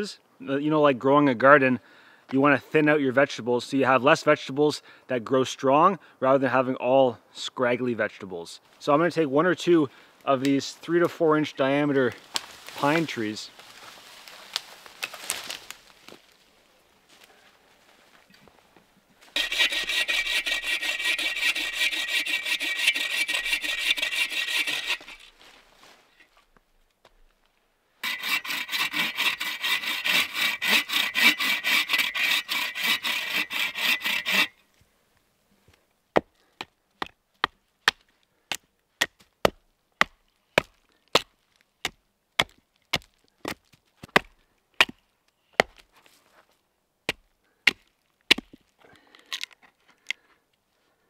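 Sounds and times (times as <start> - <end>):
hand saw cutting a log: 19.4 - 25.3, 28.0 - 34.6.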